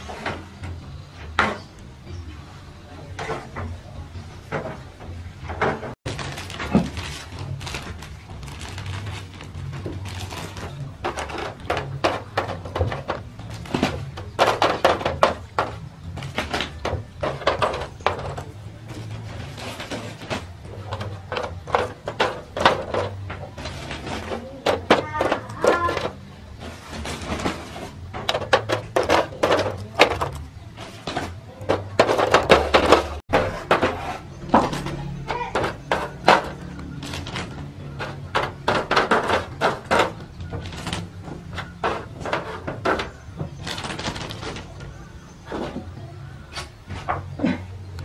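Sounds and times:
metal trays knocking and scraping: 0:00.0 - 0:01.8, 0:03.0 - 0:48.0.

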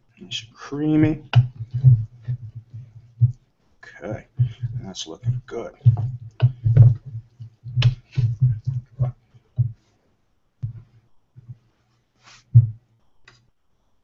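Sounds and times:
spoon tapping and knocking: 0:01.0 - 0:03.4, 0:04.4 - 0:09.8
wooden spoon scraping a pan: 0:01.0 - 0:09.8.

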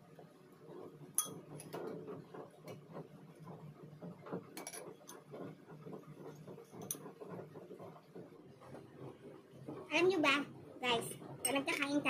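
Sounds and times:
spoon clinking on ceramic bowl: 0:01.2 - 0:01.4.

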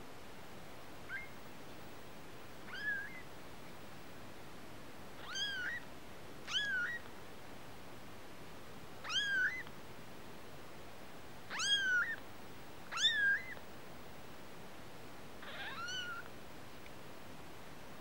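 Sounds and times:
kitten mewing: 0:05.2 - 0:05.8, 0:09.0 - 0:09.6, 0:11.5 - 0:12.2, 0:12.9 - 0:13.6, 0:15.4 - 0:16.3.

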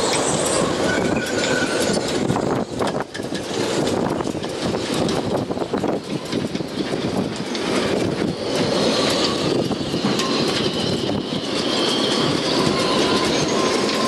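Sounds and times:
high whistling of rigging: 0:00.0 - 0:02.7, 0:08.2 - 0:14.0
wind rushing through rigging: 0:00.0 - 0:13.7.

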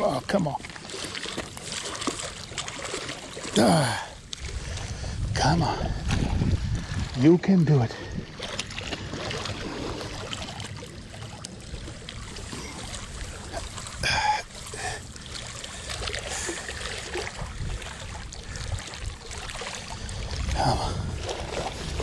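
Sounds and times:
small waves lapping: 0:00.0 - 0:22.0
wind on microphone: 0:03.6 - 0:10.6, 0:16.4 - 0:22.0.

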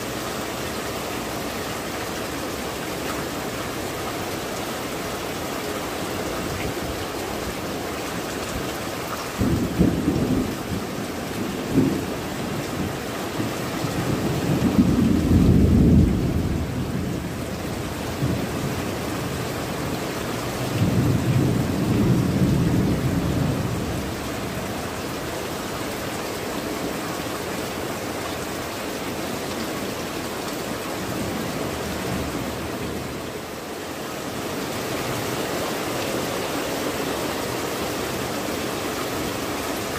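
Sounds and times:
heavy rain on tile roofs: 0:00.0 - 0:39.9
thunder rumbling: 0:09.3 - 0:19.7, 0:20.4 - 0:25.0.

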